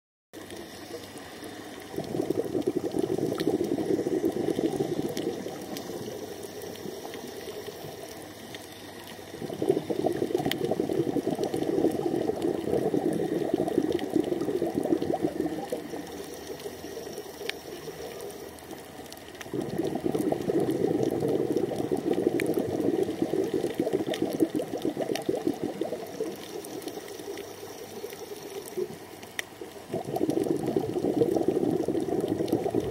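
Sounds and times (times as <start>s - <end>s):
underwater exhaled bubbles rushing: 0.4s - 32.9s
faint clicks: 3.3s - 9.4s, 15.0s - 20.2s, 25.1s - 30.5s.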